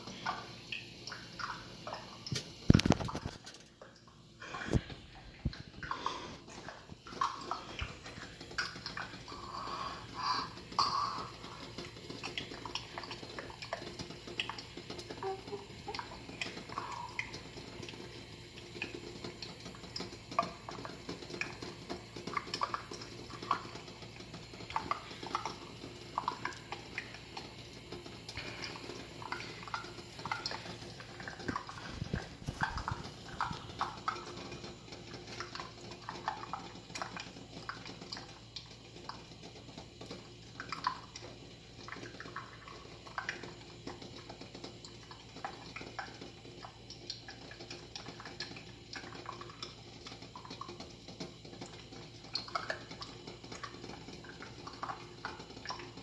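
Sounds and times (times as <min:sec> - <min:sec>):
boiling eggs clicking: 0:00.0 - 0:56.0
water bubbling: 0:22.0 - 0:34.8.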